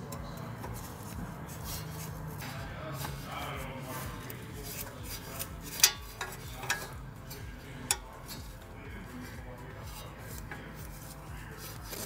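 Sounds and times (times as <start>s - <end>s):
steady low hum: 0.0s - 12.0s
wrenches clinking on metal: 4.3s - 8.8s.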